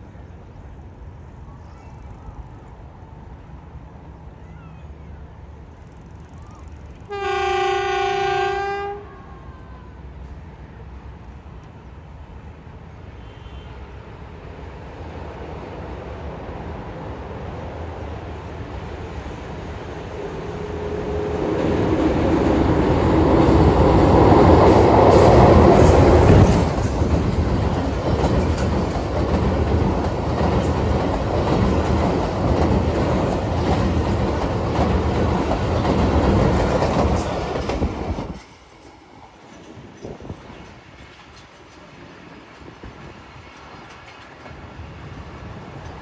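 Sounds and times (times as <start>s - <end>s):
diesel locomotive on a bridge: 0.0s - 46.0s
train wheels clacking over rail joints: 21.1s - 46.0s.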